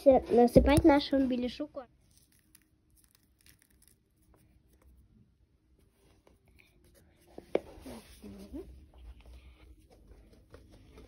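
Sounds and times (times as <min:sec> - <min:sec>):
seeds rustling in ceramic bowl: 0:02.0 - 0:05.1.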